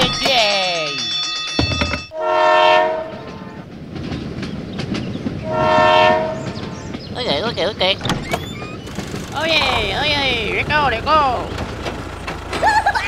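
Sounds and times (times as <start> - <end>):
train rumbling on rails: 0.0 - 13.0
train horn blasts: 2.1 - 3.6, 5.4 - 6.8.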